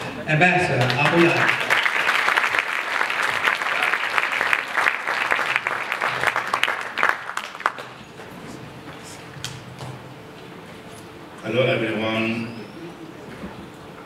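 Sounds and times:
audience applauding: 0:00.7 - 0:08.4.

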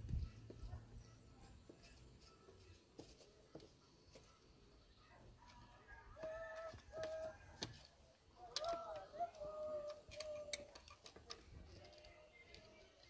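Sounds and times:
pliers clicking on metal: 0:08.5 - 0:13.0.

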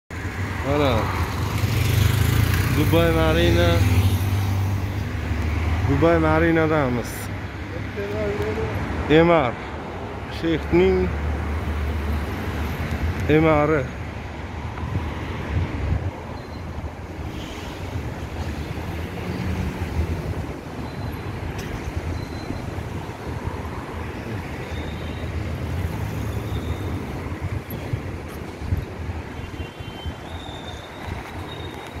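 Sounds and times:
cars driving past: 0:00.2 - 0:32.0
wind rumbling on microphone: 0:14.4 - 0:32.0.

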